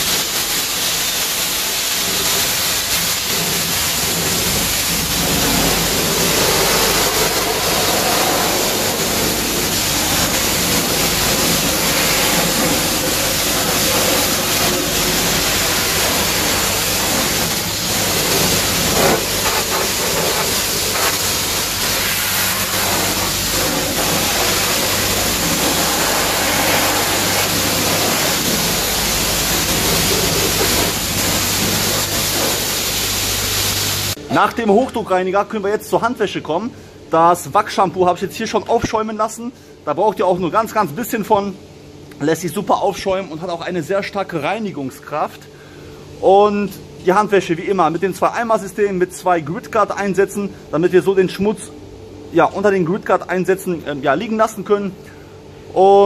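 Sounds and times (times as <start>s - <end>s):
pressure washer spraying water: 0.0s - 34.2s
steady low hum: 3.2s - 38.7s.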